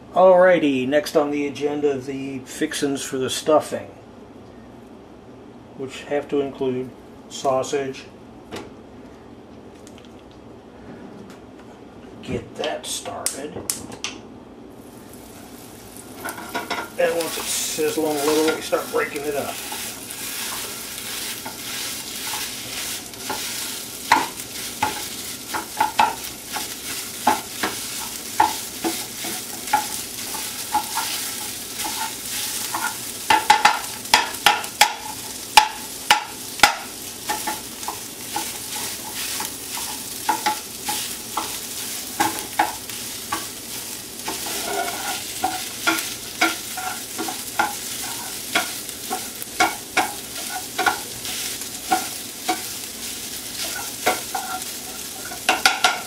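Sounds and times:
sausage sizzling in a frying pan: 0:14.8 - 0:56.0
chopper tapping and scraping pan: 0:16.2 - 0:52.8, 0:53.6 - 0:56.0.

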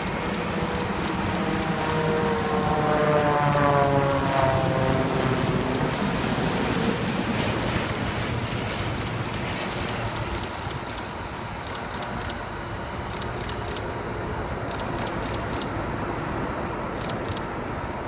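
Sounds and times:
faint high clicks: 0:00.0 - 0:12.4
distant jet rumbling: 0:00.0 - 0:18.0.

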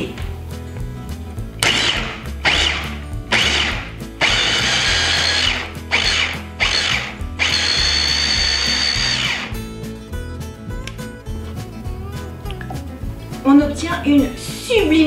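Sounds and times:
electric chopper blending: 0:01.6 - 0:09.6.

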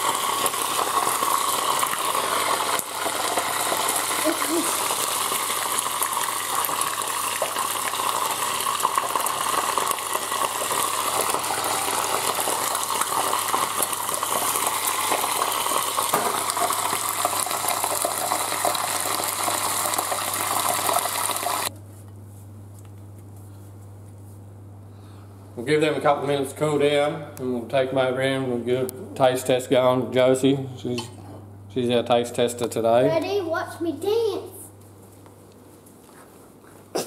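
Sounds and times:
deep-frying sizzle with crackling: 0:00.0 - 0:21.7.

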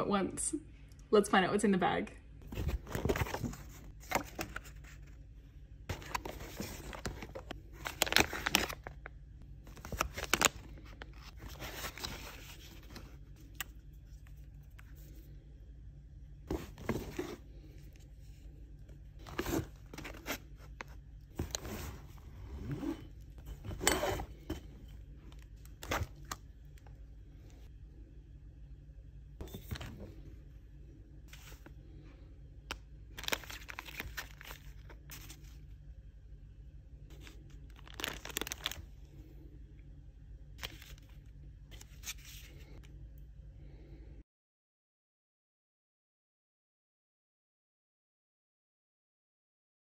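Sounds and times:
paper and packaging rustling: 0:02.4 - 0:05.2, 0:05.9 - 0:15.2, 0:19.2 - 0:26.4, 0:31.3 - 0:31.7, 0:33.1 - 0:35.6, 0:37.1 - 0:38.9, 0:40.6 - 0:42.8.

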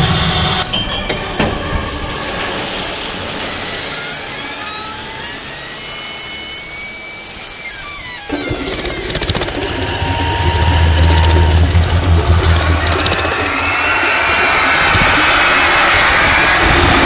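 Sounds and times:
hissing noise wash: 0:01.9 - 0:17.0
faint gliding high tones: 0:08.3 - 0:16.0
heavy low metal music: 0:08.4 - 0:15.9.

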